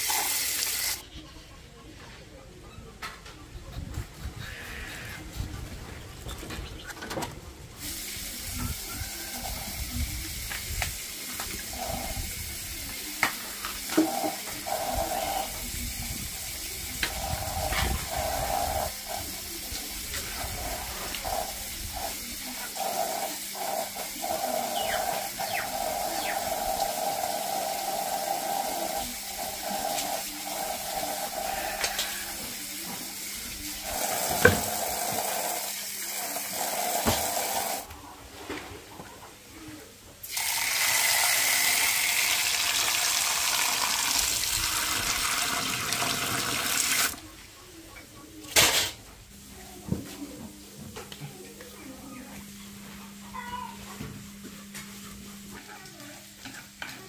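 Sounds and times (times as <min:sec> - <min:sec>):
water running from hose: 0:00.0 - 0:01.0, 0:07.8 - 0:37.9, 0:40.2 - 0:47.2.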